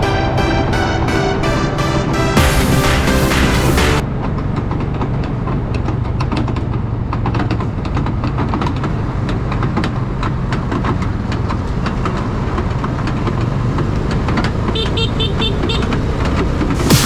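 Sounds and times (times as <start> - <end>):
road vehicles rumbling: 4.0 - 16.9.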